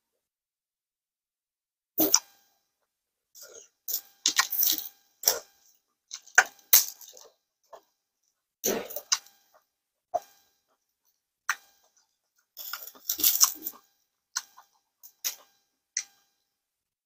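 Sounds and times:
slurping and chewing: 0:03.4 - 0:07.8, 0:08.6 - 0:09.6, 0:11.5 - 0:16.1.

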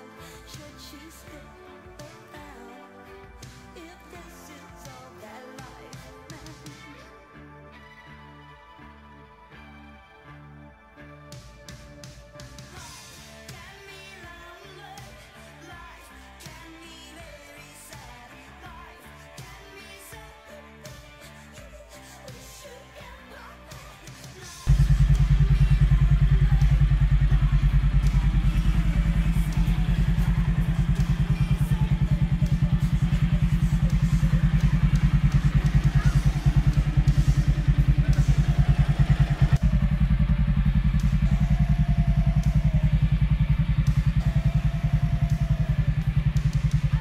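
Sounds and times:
motorcycle engine idling: 0:24.0 - 0:47.0.

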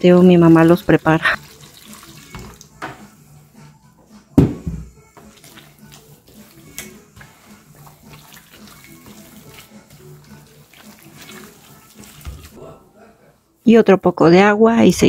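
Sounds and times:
hands kneading wet dough: 0:00.0 - 0:03.1, 0:05.2 - 0:12.6
loud thump: 0:04.4 - 0:04.9.

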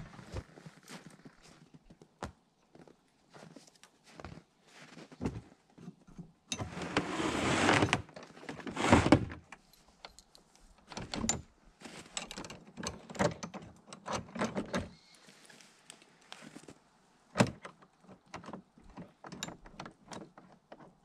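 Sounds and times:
metal clicks and clanks: 0:12.1 - 0:14.9, 0:17.4 - 0:21.0.

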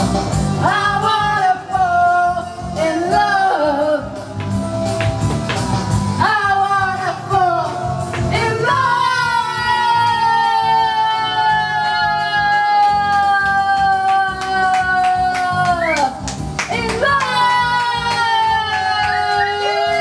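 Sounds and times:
people singing: 0:06.2 - 0:15.5, 0:16.7 - 0:20.0.

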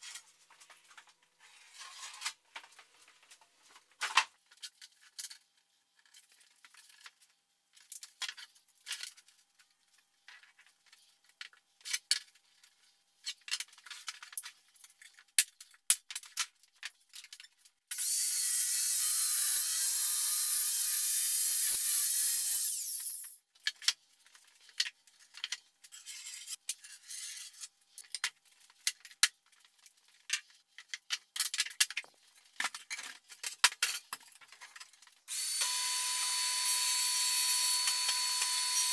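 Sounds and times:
circular saw cutting plywood: 0:35.3 - 0:38.9.

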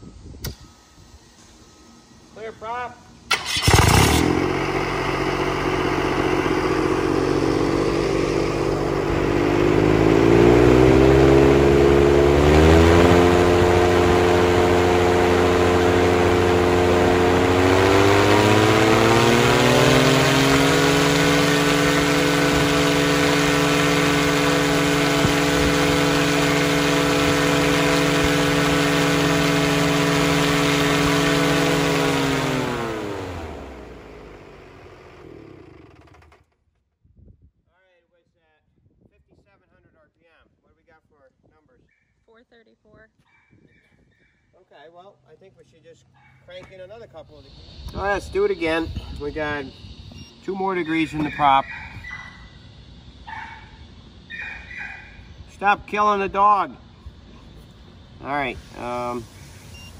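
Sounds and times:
aircraft engine and propeller: 0:03.3 - 0:36.4, 0:45.5 - 0:59.9.

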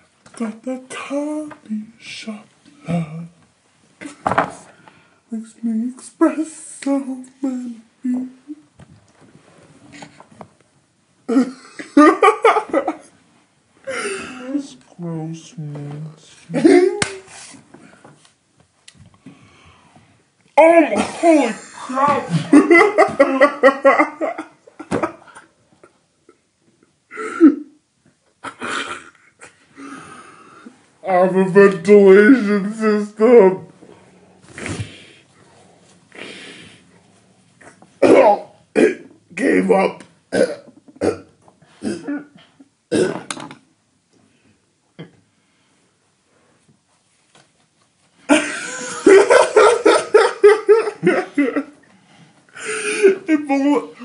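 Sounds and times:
person laughing hard: 0:11.3 - 0:13.1, 0:21.4 - 0:25.5, 0:48.3 - 0:51.8
person coughing: 0:20.9 - 0:23.4, 0:27.1 - 0:27.7, 0:38.0 - 0:39.1, 0:40.3 - 0:43.3.

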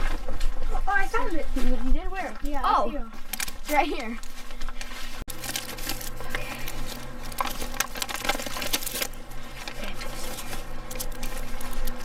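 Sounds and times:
faint steady hum: 0:00.0 - 0:12.0
paper rustling and crinkling: 0:03.2 - 0:12.0.

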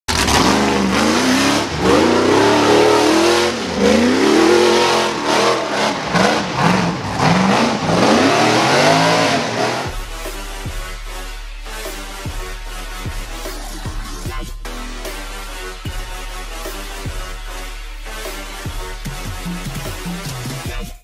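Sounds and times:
buggy engine revving: 0:00.1 - 0:10.0
electronic music: 0:00.1 - 0:21.0.

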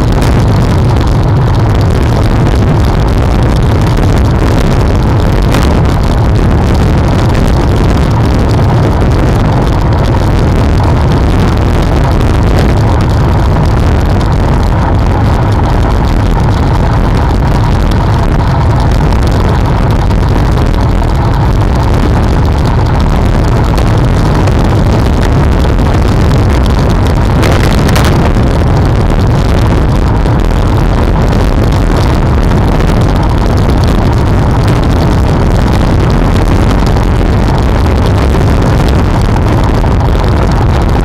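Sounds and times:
road rumble: 0:00.0 - 0:41.0
wind buffeting microphone: 0:00.0 - 0:41.0.

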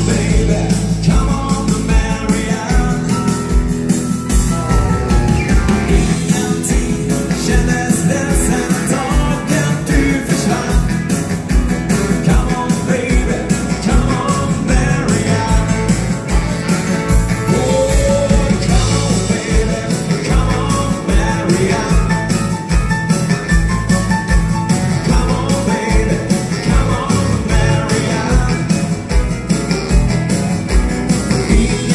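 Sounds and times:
person singing: 0:00.0 - 0:11.3, 0:11.9 - 0:22.9, 0:24.4 - 0:29.4, 0:31.1 - 0:31.9
electric guitars: 0:00.0 - 0:31.9
live rock and roll band playing: 0:00.0 - 0:31.9
steady drum beat: 0:00.0 - 0:31.9.

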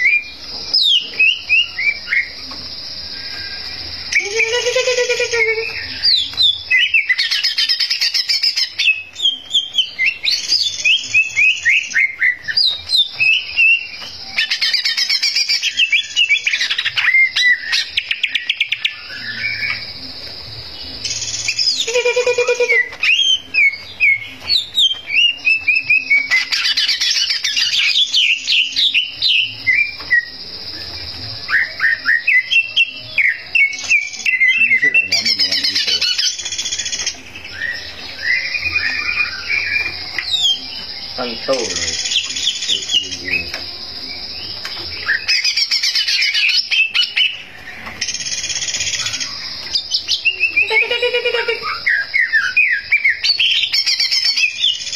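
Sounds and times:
bird singing whistled notes: 0:00.0 - 0:54.9.

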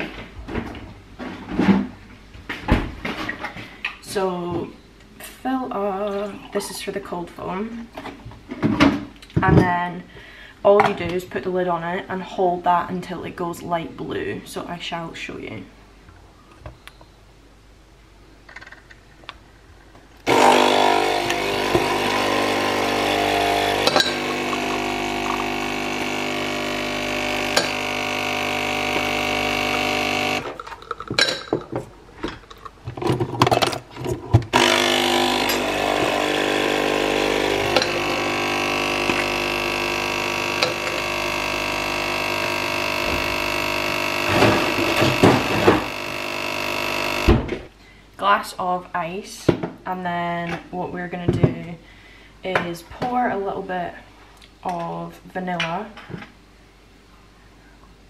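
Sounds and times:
espresso machine pump buzzing: 0:20.2 - 0:30.6, 0:34.5 - 0:47.4.

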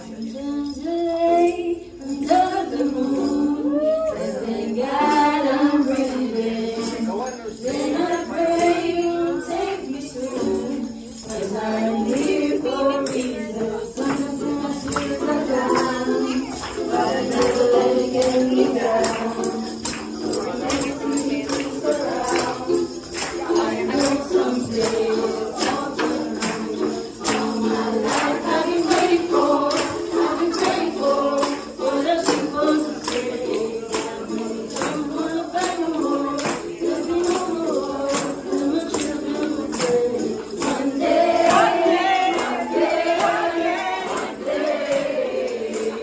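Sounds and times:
jingling tambourine-like percussion: 0:00.0 - 0:46.0
voices singing: 0:00.0 - 0:46.0.

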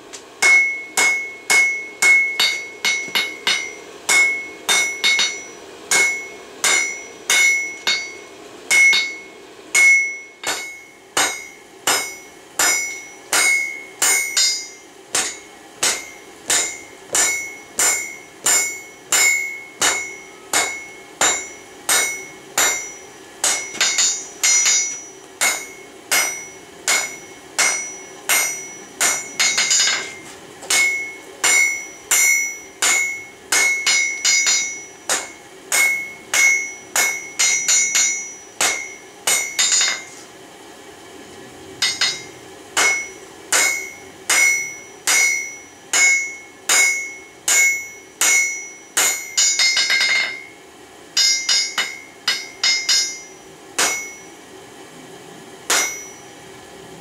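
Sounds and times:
anvil ringing: 0:00.4 - 0:40.2, 0:41.8 - 0:50.6, 0:51.2 - 0:54.4, 0:55.7 - 0:56.3
hammer striking anvil: 0:00.4 - 0:40.2, 0:41.8 - 0:50.6, 0:51.2 - 0:54.4, 0:55.7 - 0:56.3.

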